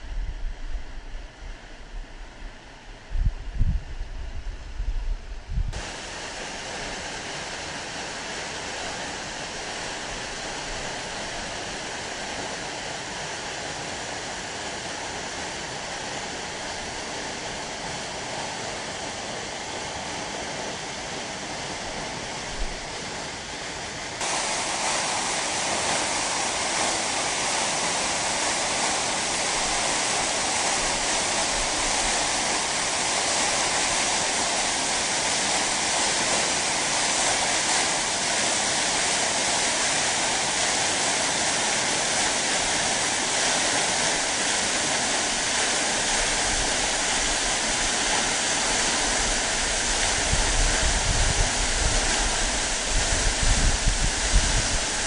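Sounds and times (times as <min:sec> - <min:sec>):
waterfall rushing: 0:05.8 - 0:55.0.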